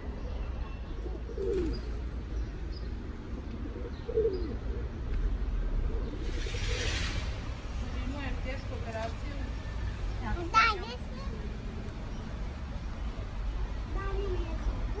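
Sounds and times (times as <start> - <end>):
bird cooing: 0.9 - 2.6, 3.2 - 5.1.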